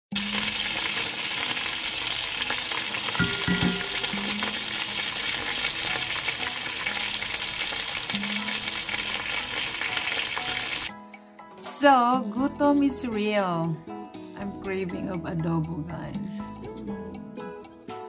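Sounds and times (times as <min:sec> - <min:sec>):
oil crackling spatters: 0:00.1 - 0:10.9
meat sizzling in hot oil: 0:00.1 - 0:11.0.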